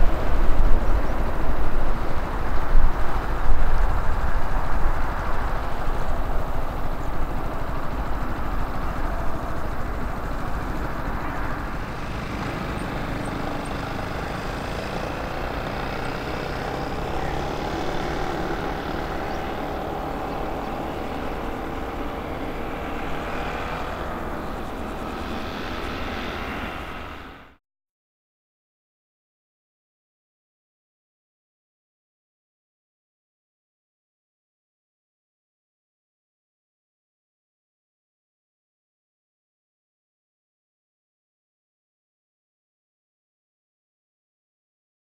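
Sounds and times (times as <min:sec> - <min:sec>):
jet engines whining: 0:00.0 - 0:27.6.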